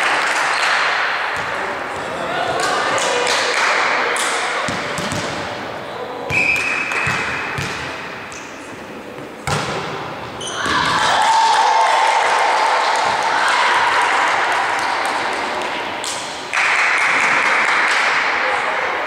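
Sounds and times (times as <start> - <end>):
whistle blast: 6.3 - 7.0
players shouting: 10.4 - 15.6.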